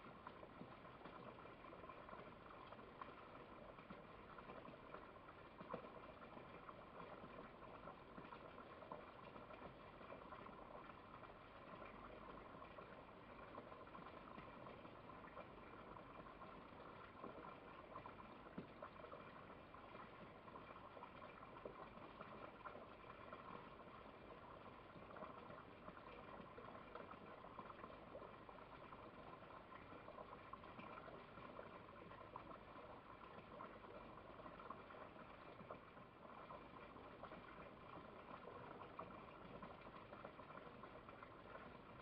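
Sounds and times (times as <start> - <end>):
faint steady hiss: 0.0 - 42.0.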